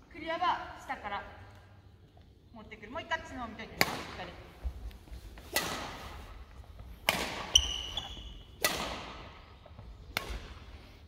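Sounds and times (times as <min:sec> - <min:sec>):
badminton racket striking shuttlecock: 0:05.4 - 0:06.2, 0:07.0 - 0:09.4
shoe squeal: 0:07.5 - 0:08.6.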